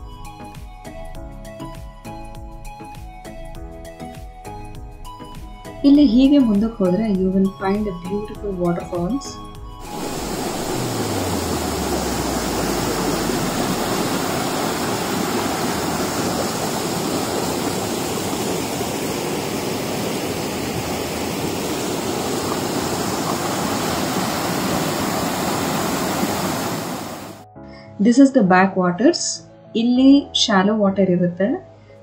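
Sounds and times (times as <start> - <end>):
river water rushing over rocks: 9.8 - 27.4.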